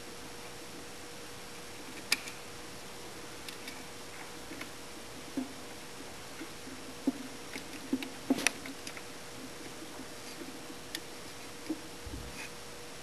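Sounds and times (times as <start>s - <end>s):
faint steady hum: 0.0s - 13.0s
clicks of wire connectors: 1.9s - 2.4s.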